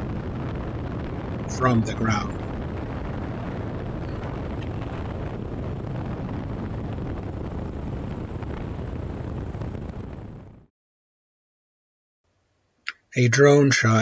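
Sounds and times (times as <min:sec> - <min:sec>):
wind buffeting microphone: 0:00.0 - 0:10.7
wind rushing: 0:00.0 - 0:10.7.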